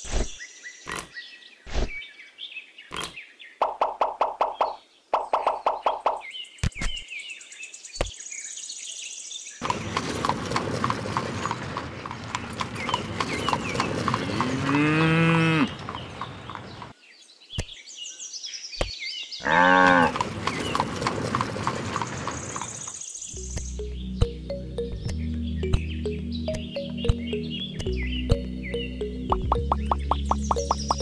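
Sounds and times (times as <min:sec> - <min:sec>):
birds chirping: 0:00.0 - 0:31.0
hooves clip-clopping: 0:09.6 - 0:14.9, 0:15.6 - 0:16.9, 0:20.0 - 0:23.0
cattle mooing: 0:14.2 - 0:15.9, 0:19.4 - 0:20.2.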